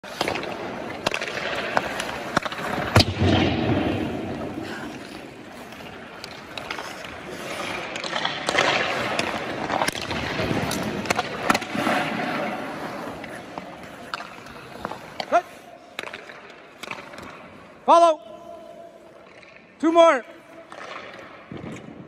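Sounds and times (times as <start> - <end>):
skate blades scraping ice: 0.0 - 22.0.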